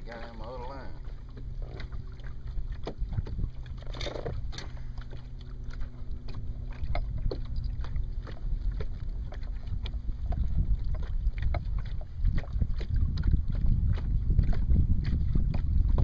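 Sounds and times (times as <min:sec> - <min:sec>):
low boat hum: 0:00.0 - 0:16.0
wind buffeting microphone: 0:00.0 - 0:16.0
fishing tackle clicks and rustles: 0:03.8 - 0:04.8.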